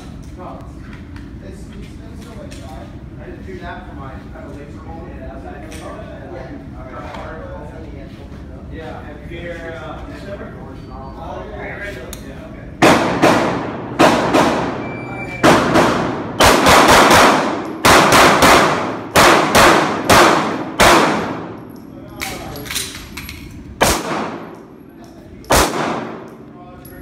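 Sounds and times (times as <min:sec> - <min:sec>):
handgun shots echoing indoors: 0:12.8 - 0:24.7, 0:25.4 - 0:26.5.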